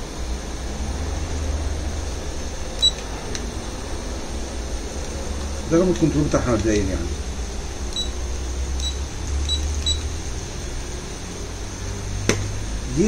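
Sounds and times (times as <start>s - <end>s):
steady low hum: 0.0s - 13.0s
high-pitched remote control beeps: 2.8s - 3.0s, 7.9s - 8.2s, 8.8s - 10.1s.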